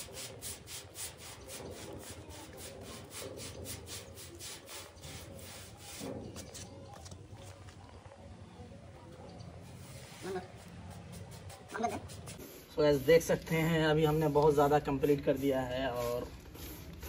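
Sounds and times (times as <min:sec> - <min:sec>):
paintbrush scrubbing metal board: 0:00.0 - 0:06.7, 0:09.8 - 0:12.7.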